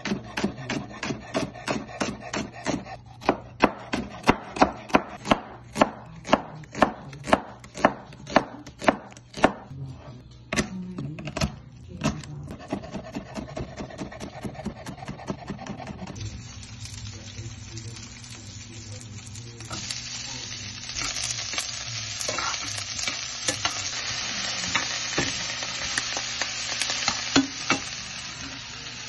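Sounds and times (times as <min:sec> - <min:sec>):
knife chopping on wooden board: 0:00.0 - 0:09.7, 0:10.5 - 0:16.2
oil hissing in pan: 0:16.2 - 0:29.0.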